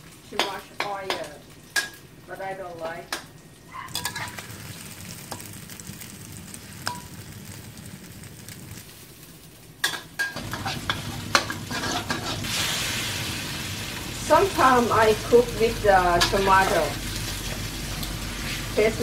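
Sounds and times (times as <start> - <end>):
omelette sizzling in oil: 0.0 - 19.0
metal spatula scraping wok: 3.8 - 4.4, 10.2 - 13.0.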